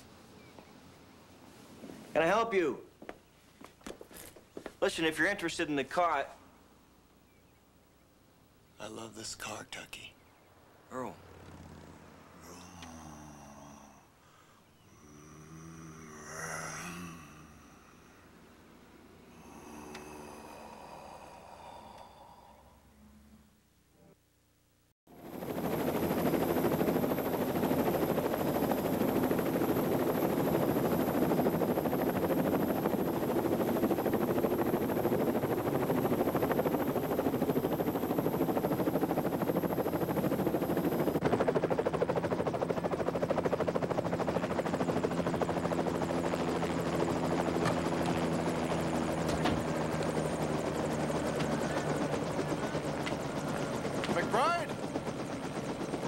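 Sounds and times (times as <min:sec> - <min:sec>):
helicopter engine and rotor: 0:19.4 - 0:22.0, 0:25.1 - 0:56.0.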